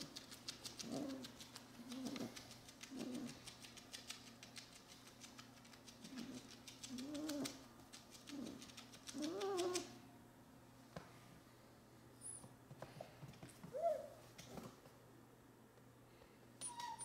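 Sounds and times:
puppy whining: 0.0s - 4.2s, 5.9s - 10.0s, 13.6s - 14.6s, 16.6s - 17.0s
puppy scratching itself: 0.0s - 10.0s.

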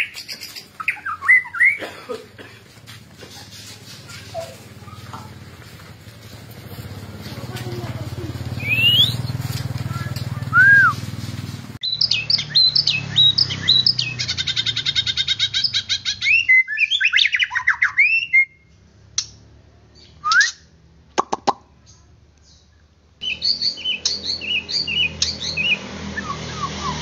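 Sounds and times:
bird singing whistled phrases: 0.0s - 1.8s, 8.6s - 9.4s, 10.5s - 11.0s, 11.8s - 14.4s, 15.7s - 18.7s, 20.0s - 20.7s, 23.2s - 27.0s.

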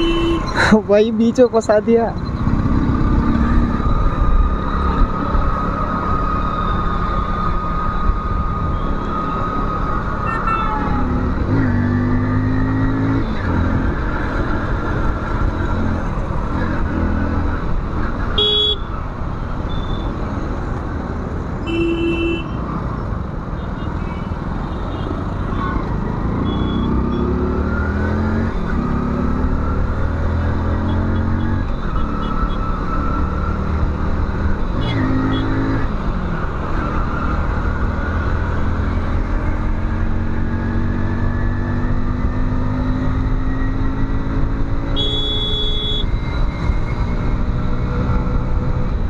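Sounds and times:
motorcycle engine accelerating: 2.2s - 6.8s.

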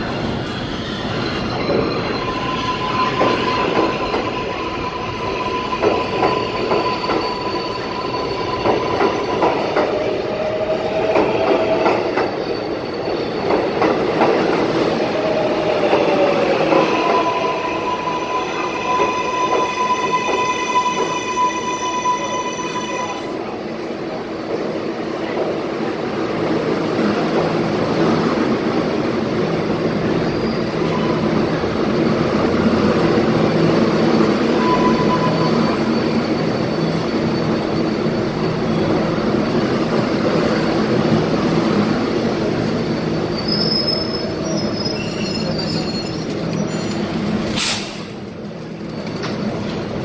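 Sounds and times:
train wheels on rails: 0.0s - 50.0s
high wheel squeals: 0.5s - 23.5s, 30.0s - 48.1s
short sharp hiss: 47.5s - 48.2s.

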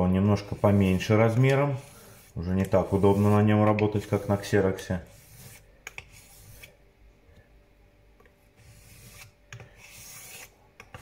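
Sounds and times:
razor scraping on whetstone: 0.4s - 6.8s, 8.6s - 10.6s.

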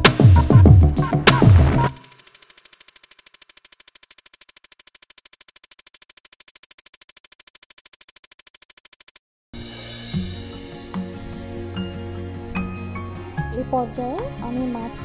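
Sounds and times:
electronic pulse music: 0.0s - 9.2s.

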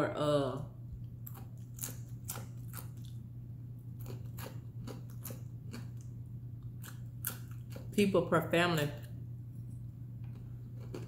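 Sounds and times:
steady low hum: 0.0s - 11.0s
crunchy chewing: 1.1s - 3.2s, 3.9s - 8.0s, 10.2s - 11.0s.

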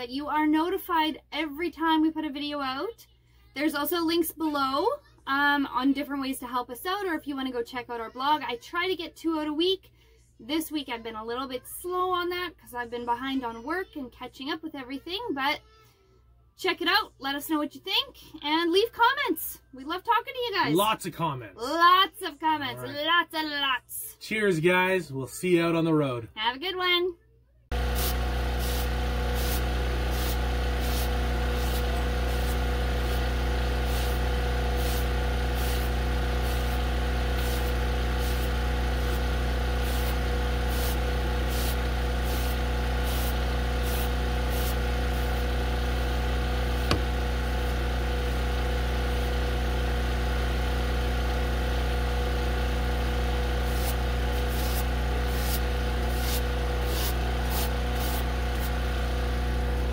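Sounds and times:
short scratchy strokes: 27.7s - 45.4s, 53.6s - 58.8s
engine hum: 27.7s - 59.9s.

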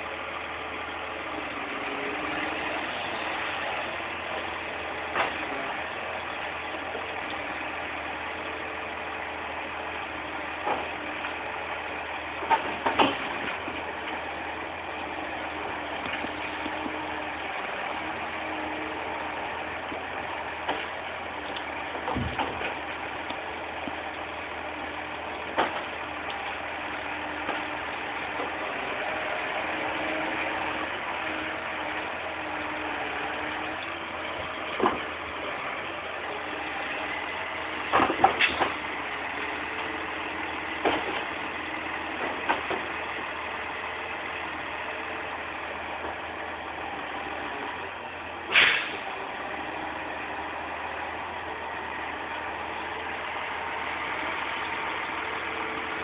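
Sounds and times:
truck engine running: 0.0s - 56.0s
logs knocking: 10.5s - 11.4s, 12.4s - 14.3s, 19.9s - 24.3s, 25.2s - 26.5s, 32.6s - 35.5s, 37.7s - 40.0s, 40.6s - 41.4s.

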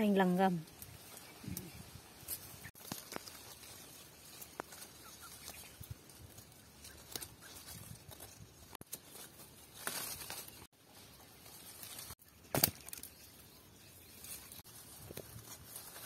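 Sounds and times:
leaves and branches rustling: 0.0s - 16.0s
fruit thumping into basket: 12.5s - 13.1s.

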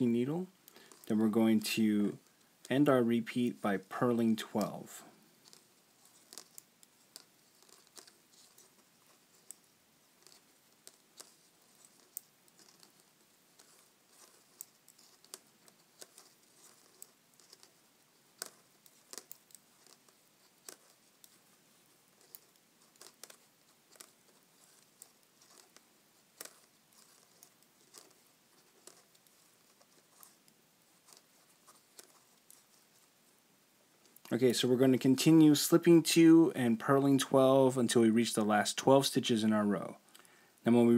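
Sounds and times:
knitting needles clicking: 5.4s - 33.1s.

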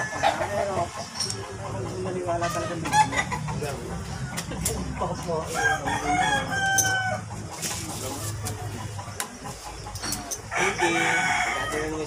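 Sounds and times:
rooster crowing: 5.5s - 7.3s, 10.5s - 12.0s.

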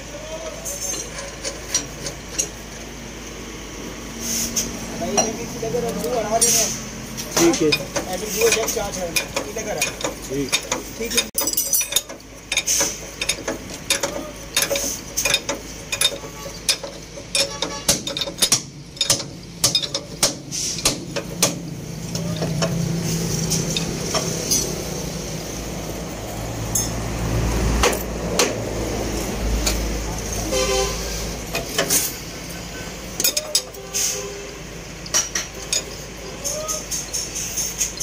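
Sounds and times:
vehicle engine low hum: 0.0s - 38.0s
spanner clinking on metal nut: 7.2s - 21.5s, 33.2s - 33.8s, 35.0s - 38.0s.

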